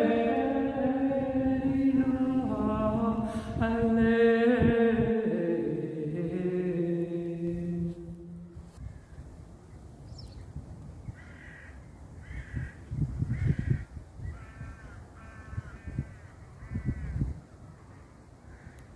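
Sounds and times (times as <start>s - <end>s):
crow cawing: 11.2s - 17.3s, 17.9s - 18.9s.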